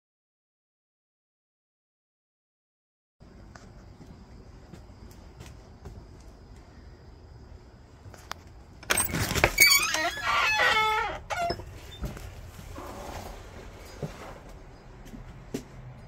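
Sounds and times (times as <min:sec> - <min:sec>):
wooden door hinges creaking: 0:08.8 - 0:13.3.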